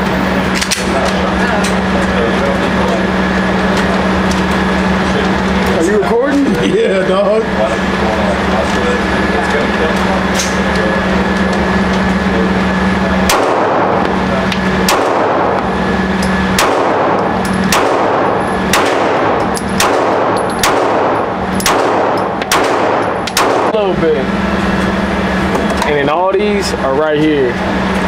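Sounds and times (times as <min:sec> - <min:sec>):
pistol shots echoing indoors: 0:13.2 - 0:14.0, 0:14.8 - 0:15.6, 0:16.5 - 0:23.8.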